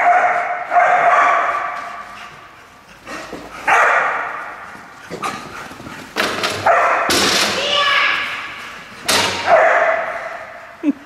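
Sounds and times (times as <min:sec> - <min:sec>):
dog barking with echo: 0:00.0 - 0:01.8, 0:03.7 - 0:04.4, 0:06.6 - 0:07.2, 0:09.4 - 0:10.5.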